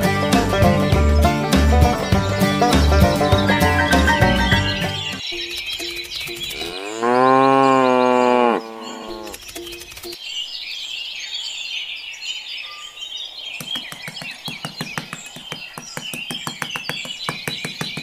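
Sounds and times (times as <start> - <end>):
birds chirping: 0.0 - 18.0
cow mooing: 6.6 - 9.4.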